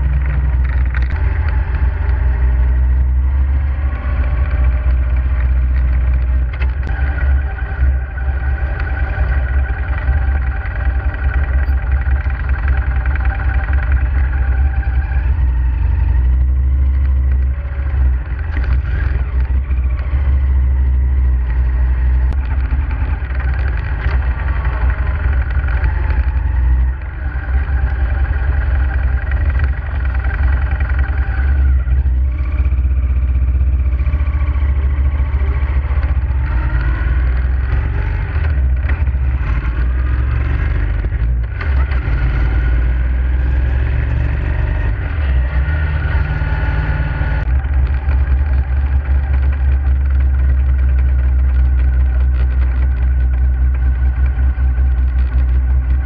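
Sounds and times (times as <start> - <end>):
motorcycle engine rumbling: 0.0 - 56.0.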